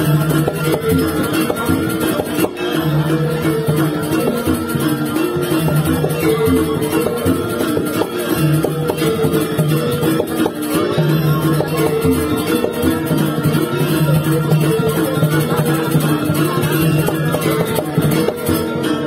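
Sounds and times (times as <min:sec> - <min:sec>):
metallophone melody: 0:00.0 - 0:19.0.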